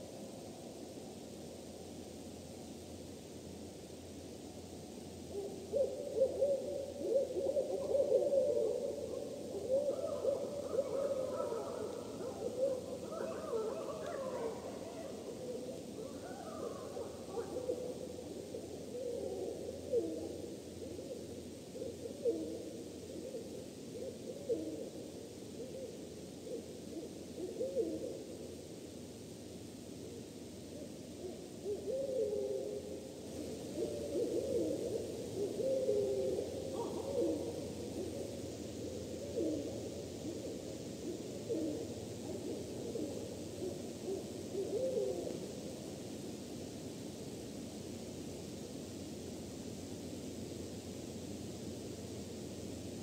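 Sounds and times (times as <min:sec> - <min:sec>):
background hiss: 0:00.0 - 0:53.0
owl calling: 0:05.3 - 0:25.0, 0:25.6 - 0:28.3, 0:31.2 - 0:45.5.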